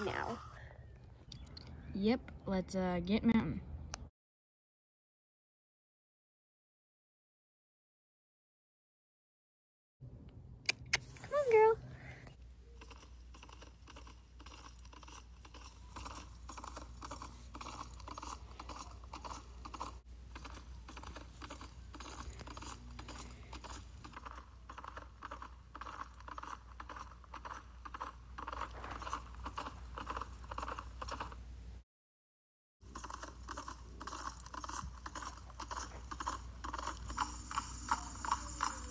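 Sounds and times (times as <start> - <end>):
toy hoofbeats clip-clop: 12.7 - 31.4, 32.9 - 38.9.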